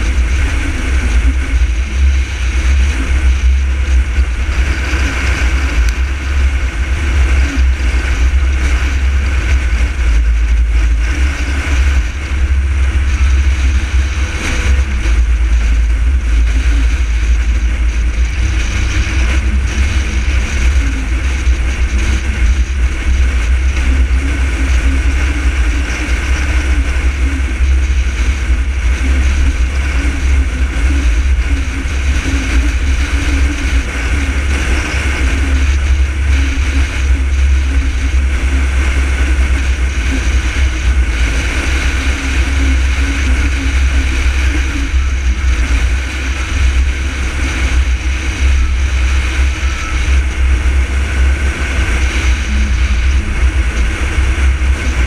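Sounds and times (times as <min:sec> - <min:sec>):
car driving at highway speed: 0:00.0 - 0:55.0.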